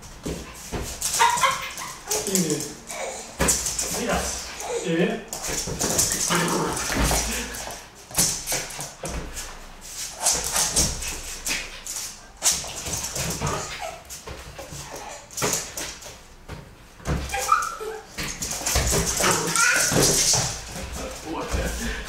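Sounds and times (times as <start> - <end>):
dog whining and yipping: 13.4 - 14.1, 17.2 - 18.2, 19.1 - 20.4.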